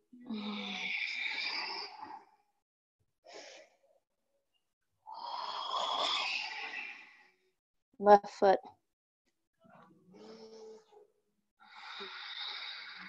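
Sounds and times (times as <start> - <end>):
woman breathing deeply: 11.6 - 13.0.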